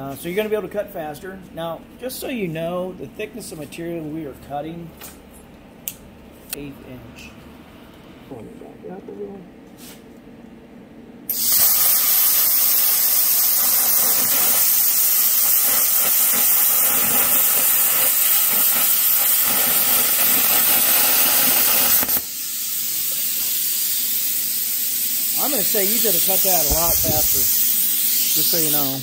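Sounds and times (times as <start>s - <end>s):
plasma cutter hissing: 11.3s - 29.0s
rush of air: 26.6s - 27.7s.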